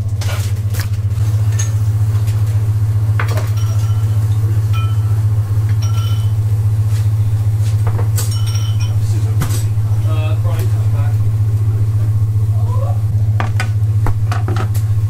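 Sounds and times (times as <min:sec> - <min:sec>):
loud steady low hum: 0:00.0 - 0:15.0
knife and utensils clinking: 0:03.3 - 0:06.4, 0:08.1 - 0:09.7.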